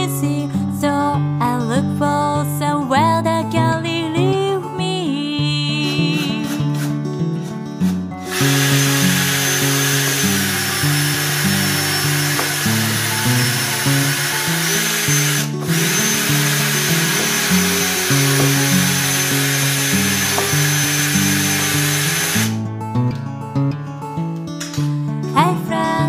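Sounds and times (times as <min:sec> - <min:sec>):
cordless drill boring through plastic: 0:06.1 - 0:06.9, 0:08.2 - 0:22.6.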